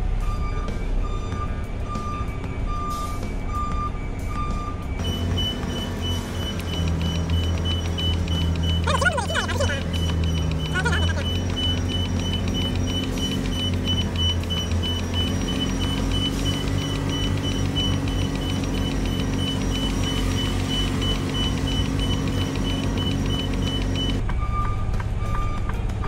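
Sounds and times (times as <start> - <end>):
truck diesel engine idling: 0.2 - 24.7
reverse warning beeps: 0.2 - 25.8.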